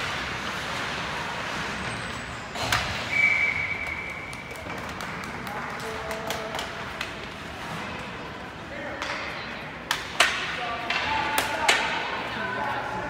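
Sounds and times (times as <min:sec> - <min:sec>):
ice rink ambience: 0:00.0 - 0:13.0
referee's whistle: 0:03.1 - 0:04.4.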